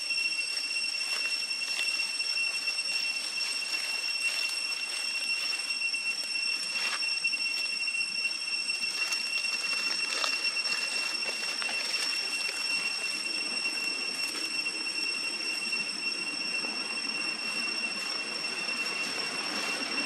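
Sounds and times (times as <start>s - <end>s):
high-pitched insect drone: 0.0s - 20.0s
faint clicks and rustles: 8.9s - 13.5s.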